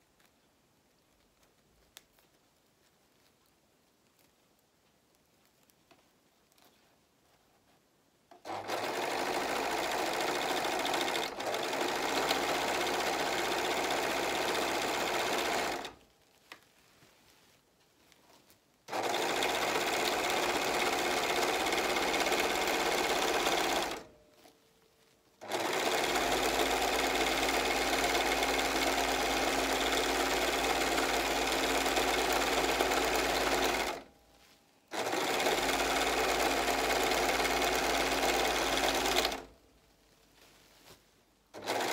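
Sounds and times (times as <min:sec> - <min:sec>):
overlock machine stitching: 0:08.3 - 0:16.0, 0:18.9 - 0:24.1, 0:25.4 - 0:34.1, 0:34.9 - 0:39.5, 0:41.5 - 0:41.9.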